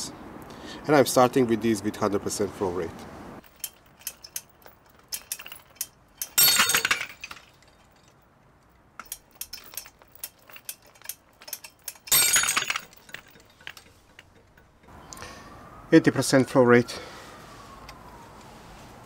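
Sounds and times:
metal hook and chain clinking: 0:03.4 - 0:08.3, 0:09.0 - 0:14.9.

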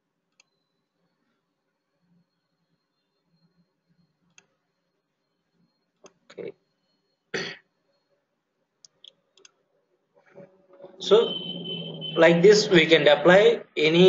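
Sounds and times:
man clearing throat: 0:07.4 - 0:07.6
computer mouse clicks: 0:08.8 - 0:09.6.

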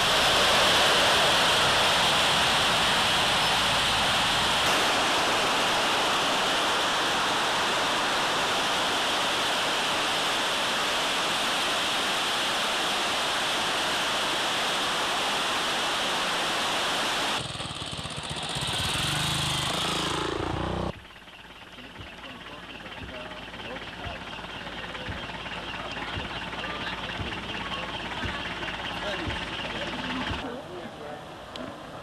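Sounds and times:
small motorbike engine: 0:00.0 - 0:15.8, 0:17.4 - 0:30.5
waterfall roaring: 0:00.0 - 0:17.4.

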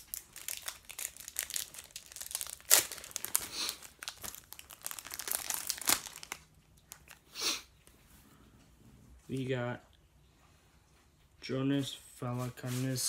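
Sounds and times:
wrapper tearing and crinkling: 0:00.0 - 0:07.2.

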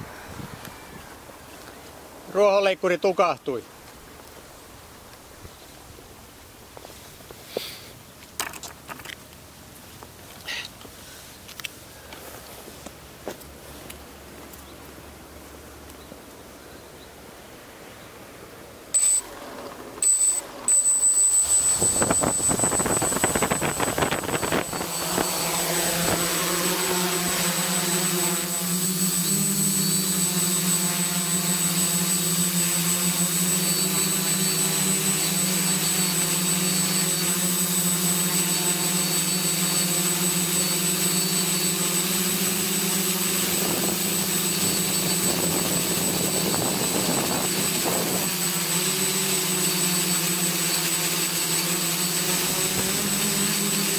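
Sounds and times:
quadcopter propellers buzzing: 0:18.9 - 0:53.9.

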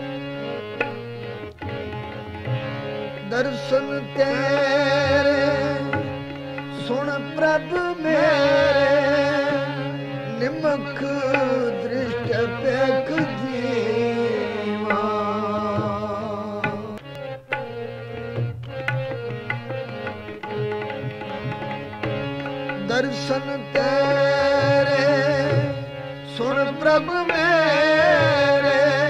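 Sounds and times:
harmonium notes: 0:00.0 - 0:29.0
tabla playing: 0:00.0 - 0:29.0
person singing: 0:03.2 - 0:17.0, 0:22.8 - 0:29.0.

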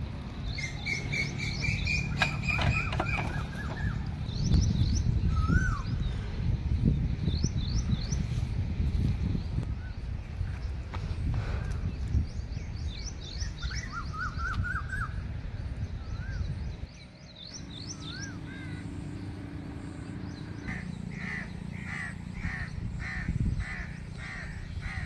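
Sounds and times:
harsh repeated bird calls: 0:00.4 - 0:08.3, 0:16.3 - 0:25.0.

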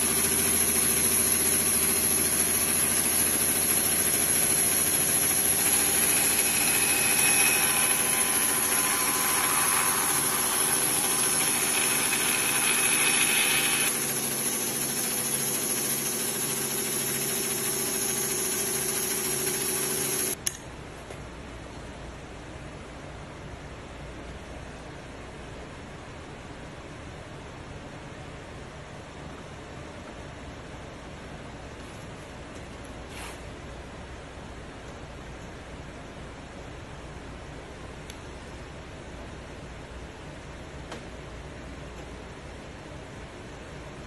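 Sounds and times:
bandsaw hum: 0:00.0 - 0:20.4.

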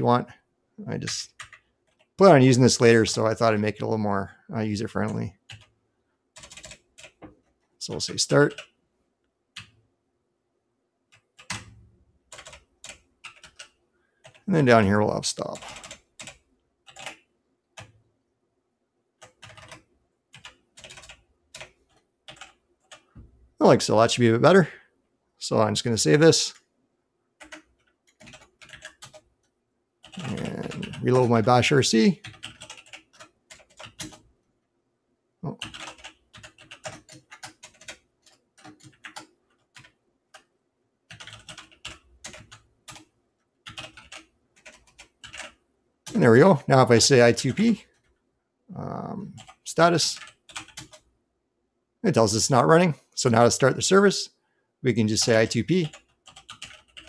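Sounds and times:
computer keyboard typing: 0:01.0 - 0:02.2, 0:05.0 - 0:05.8, 0:06.4 - 0:08.7, 0:09.6 - 0:09.8, 0:11.1 - 0:14.8, 0:15.4 - 0:18.0, 0:19.2 - 0:23.1, 0:27.4 - 0:34.3, 0:35.5 - 0:40.5, 0:41.1 - 0:46.4, 0:49.3 - 0:51.1, 0:55.2 - 0:57.0.

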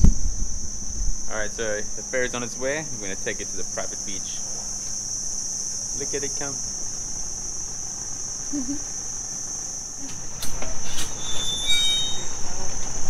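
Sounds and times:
insect chorus drone: 0:00.0 - 0:13.0
short high squeaks: 0:10.0 - 0:12.8.

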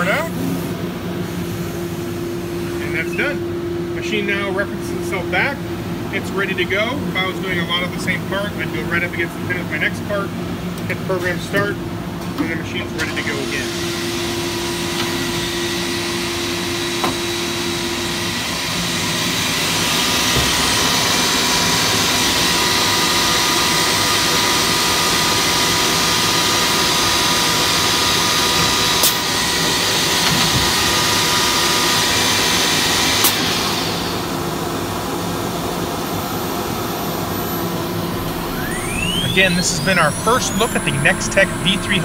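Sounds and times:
machine rushing with whine: 0:13.4 - 0:42.0.

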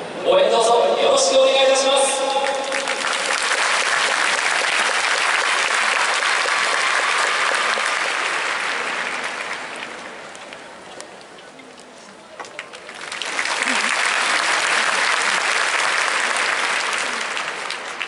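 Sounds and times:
audience applauding: 0:02.4 - 0:10.6, 0:12.4 - 0:18.0.

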